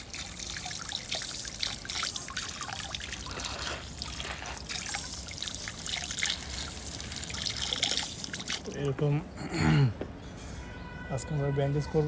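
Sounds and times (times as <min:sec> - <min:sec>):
water trickling and splashing: 0:00.0 - 0:09.1.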